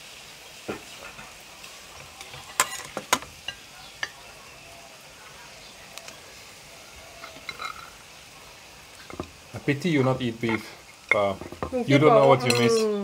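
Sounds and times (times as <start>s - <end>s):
meat sizzling on grill pan: 0.0s - 13.0s.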